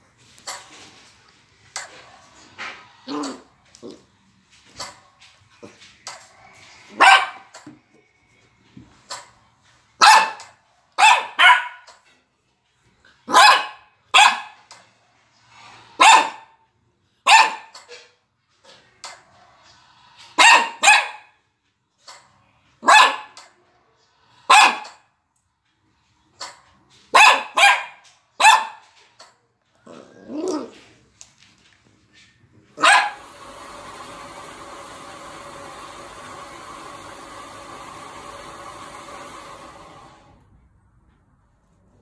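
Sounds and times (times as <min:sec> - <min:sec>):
puppy barking: 0:06.9 - 0:07.5, 0:10.0 - 0:11.9, 0:13.3 - 0:14.6, 0:16.0 - 0:16.6, 0:17.2 - 0:17.8, 0:20.4 - 0:21.4, 0:22.8 - 0:23.4, 0:24.5 - 0:25.0, 0:27.1 - 0:29.0, 0:32.8 - 0:33.2.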